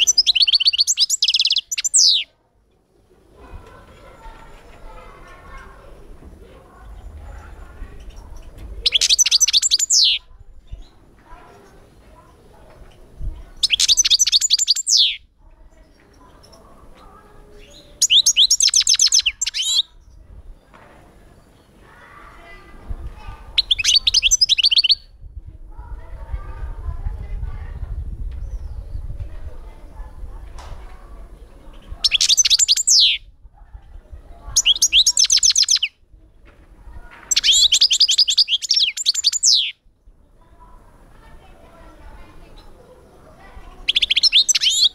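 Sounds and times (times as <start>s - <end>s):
goldfinch singing: 0.0s - 2.3s, 8.8s - 10.2s, 13.6s - 15.2s, 17.6s - 19.9s, 23.6s - 25.0s, 32.0s - 33.2s, 34.6s - 35.9s, 37.3s - 39.8s, 43.8s - 44.9s.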